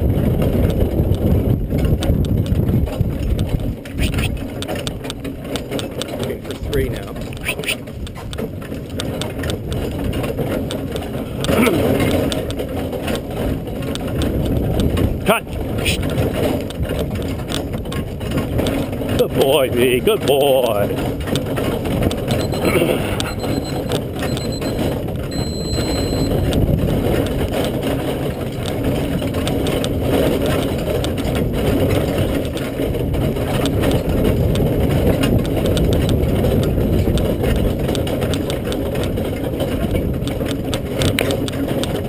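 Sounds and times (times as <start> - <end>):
carriage wheels rumbling: 0.0 - 42.0
rattling and knocking: 0.0 - 42.0.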